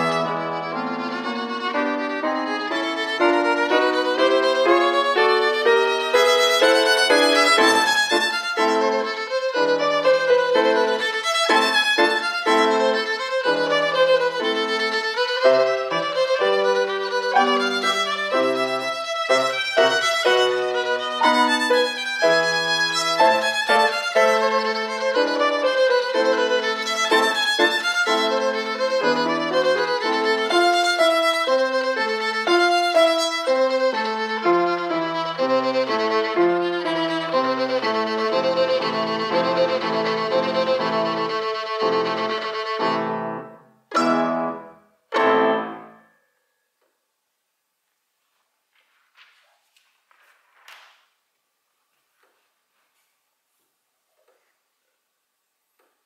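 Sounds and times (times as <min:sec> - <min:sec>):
violin playing quick melody: 0:00.0 - 0:45.9
grand piano: 0:00.0 - 0:46.4.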